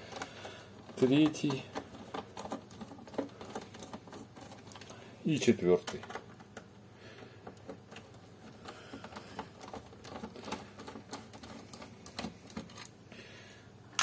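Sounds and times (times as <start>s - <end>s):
screwdriver clicking and scraping: 7.4s - 12.9s.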